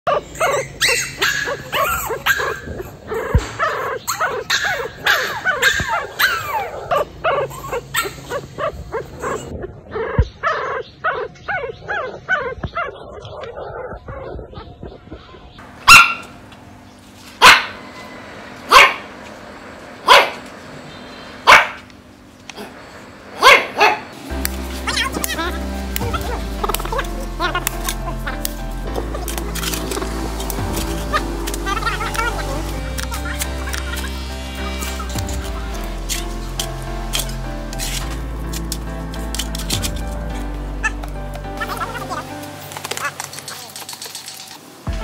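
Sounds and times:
dog barking: 0.1 - 14.7, 15.9 - 16.3, 17.4 - 17.8, 18.7 - 19.1, 20.0 - 20.4, 21.4 - 21.9, 23.4 - 24.1
puppies whimpering and yelping: 0.1 - 16.2, 23.4 - 38.1.

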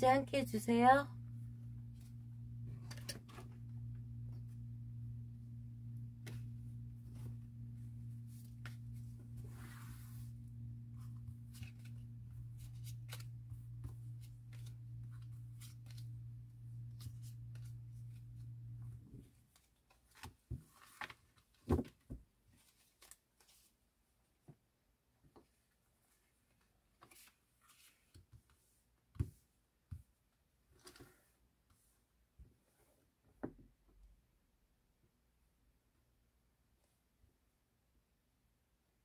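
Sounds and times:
low hum: 0.2 - 19.2
cards being shuffled: 11.0 - 18.5.

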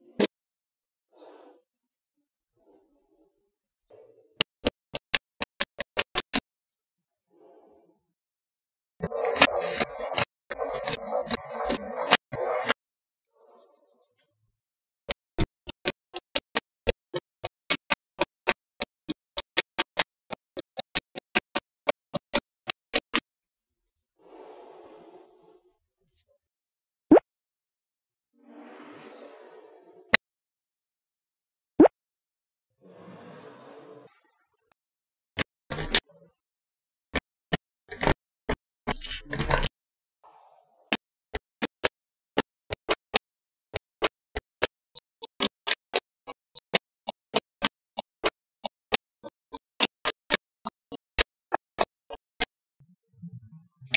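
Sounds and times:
magnetic balls clicking: 4.4 - 6.4, 9.0 - 12.8, 15.1 - 23.2, 35.4 - 36.0, 37.2 - 39.7, 40.9 - 52.5
magnet balls clicking together: 35.7 - 36.0.

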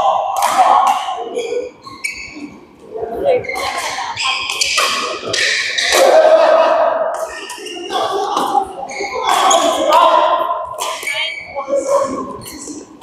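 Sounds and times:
racket hitting shuttlecock: 0.4 - 1.2, 3.5 - 6.3, 10.8 - 11.1
shoes squeaking on court: 1.3 - 6.0, 8.9 - 9.8.

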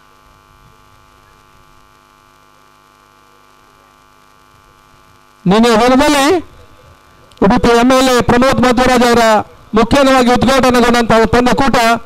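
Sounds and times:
electrical mains hum: 0.0 - 12.0
man commentating: 5.4 - 6.8, 7.4 - 12.0.

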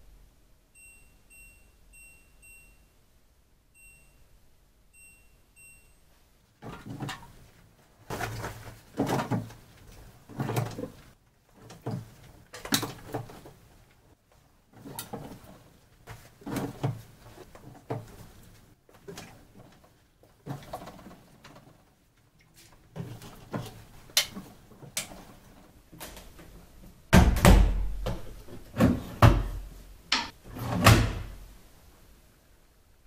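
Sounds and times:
washing machine beeping: 0.7 - 3.0, 3.7 - 6.2.

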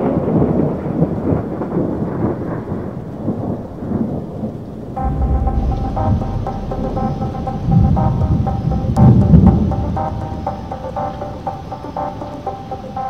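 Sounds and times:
thunder rolling and crackling: 0.0 - 12.3
steady rain: 0.0 - 13.0
music: 5.0 - 13.0.

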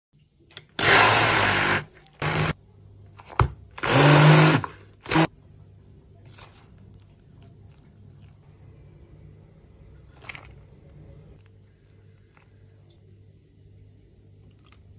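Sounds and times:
immersion blender grinding: 0.8 - 2.6, 3.8 - 5.3.

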